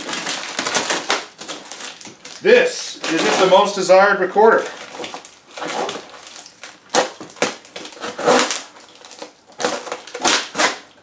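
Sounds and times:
cardboard and packing crunching: 0.0s - 11.0s.

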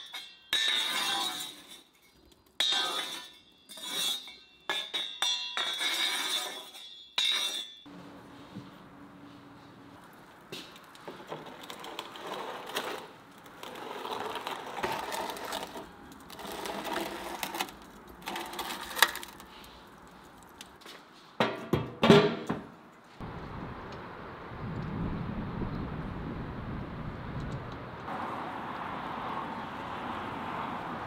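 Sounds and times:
embers crackling: 9.6s - 20.8s
metal pan scraping oven floor: 11.1s - 19.5s.

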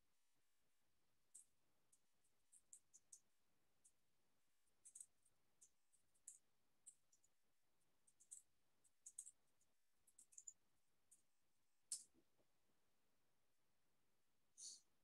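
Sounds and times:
faint small clicks: 8.1s - 9.4s, 11.9s - 12.2s.

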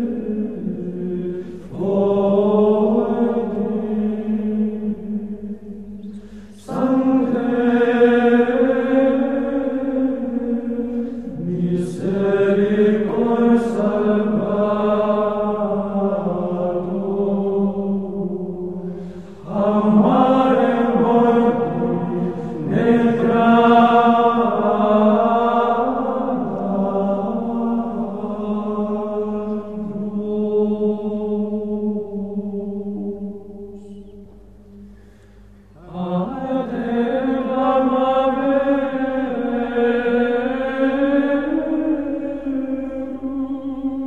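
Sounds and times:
voices chanting long notes: 0.0s - 34.1s.

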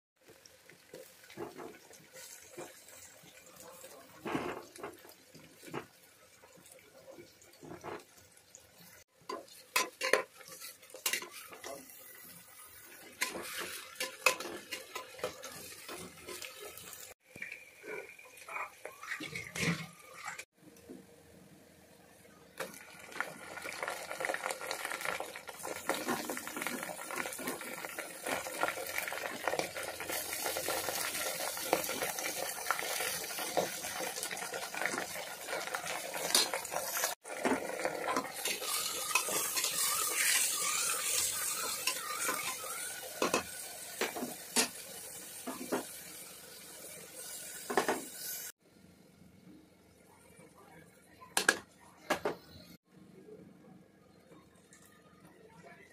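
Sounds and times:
food sizzling in hot oil: 0.2s - 20.6s, 22.6s - 48.6s
spoon clinking and scraping pot: 9.3s - 11.9s, 13.1s - 16.8s, 38.0s - 44.7s.

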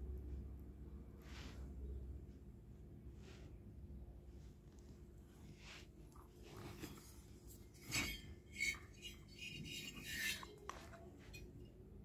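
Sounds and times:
metal cylinder scraping and rubbing: 5.7s - 11.8s.

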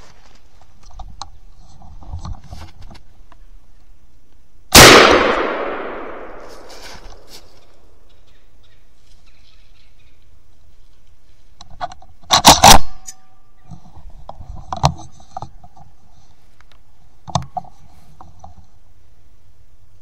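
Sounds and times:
gunshot with echo: 4.7s - 6.7s.

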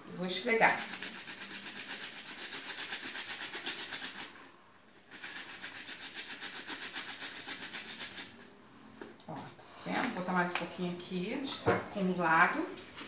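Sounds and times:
wet fabric scrubbed by hand: 0.6s - 4.4s, 5.0s - 8.4s.

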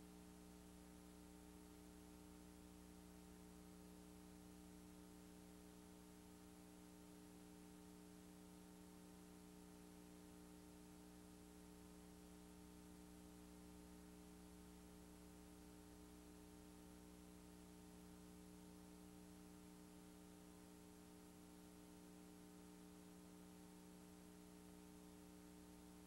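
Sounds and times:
faint electrical hum: 0.0s - 26.0s.

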